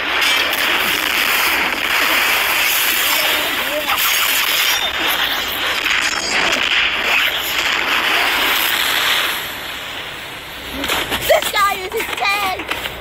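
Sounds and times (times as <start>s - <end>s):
loud rushing noise: 0.0s - 11.4s
faint cracks: 10.7s - 13.0s.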